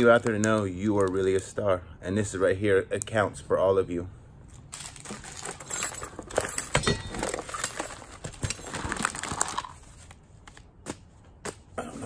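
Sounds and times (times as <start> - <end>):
plastic packaging rustling: 0.0 - 1.6, 4.5 - 10.7
hard objects clinking: 4.8 - 9.8.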